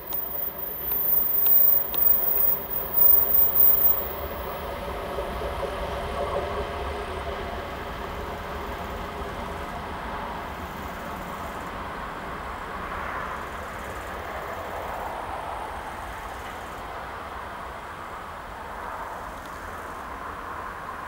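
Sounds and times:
train wheels rolling on track: 0:00.0 - 0:21.0.

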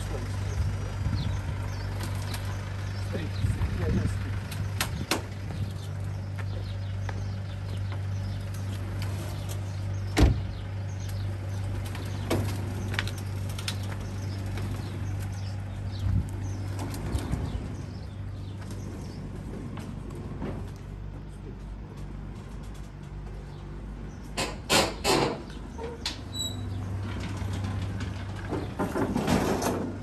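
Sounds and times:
vehicle engine idling: 0:00.0 - 0:30.0
car door slamming: 0:10.2 - 0:10.5.

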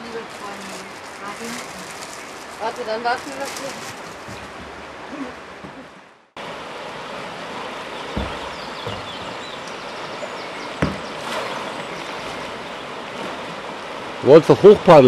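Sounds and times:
river current rushing: 0:00.0 - 0:15.0
low thumps on kayak: 0:04.2 - 0:04.8, 0:08.0 - 0:09.8, 0:10.7 - 0:11.5.

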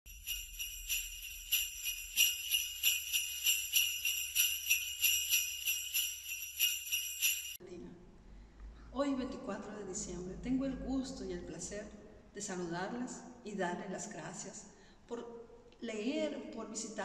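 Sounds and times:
sleigh bells shaking: 0:00.1 - 0:07.6.

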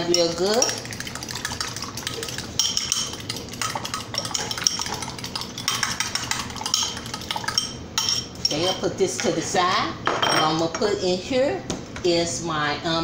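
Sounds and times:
wet egg stirring: 0:00.0 - 0:08.8
whisk clinking on glass bowl: 0:00.0 - 0:08.8.

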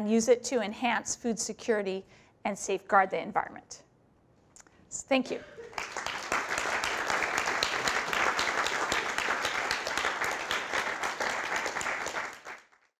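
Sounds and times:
audience applauding: 0:05.7 - 0:12.9.

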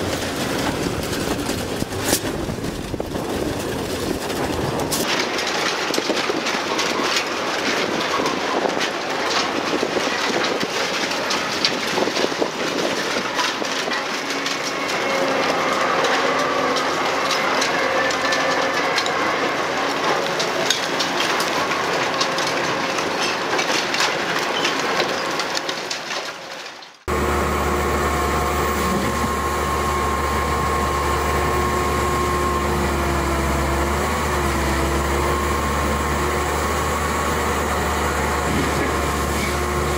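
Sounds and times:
shredded scrap clattering: 0:00.0 - 0:39.9
forestry machine engine drone: 0:13.2 - 0:24.1, 0:27.1 - 0:39.9.

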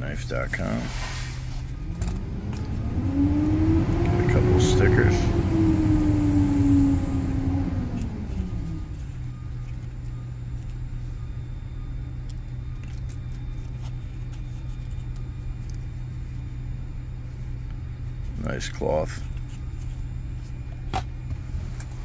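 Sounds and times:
motor hum and rumble: 0:00.0 - 0:22.0
falling tone: 0:01.8 - 0:08.9
cards rustling in cardboard box: 0:12.7 - 0:16.0.

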